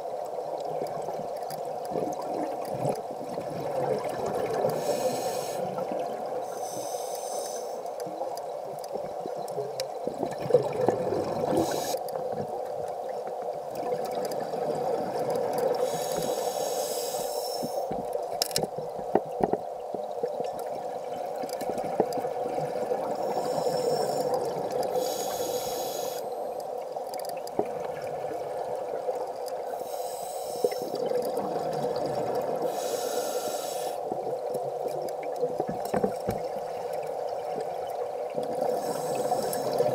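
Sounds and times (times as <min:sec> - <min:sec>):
faint clicks: 0:00.2 - 0:03.1, 0:06.5 - 0:22.4, 0:23.2 - 0:28.0, 0:29.2 - 0:31.4, 0:32.6 - 0:39.9
scuba regulator exhaling bubbles: 0:10.2 - 0:12.0
muffled underwater drone: 0:23.1 - 0:26.6.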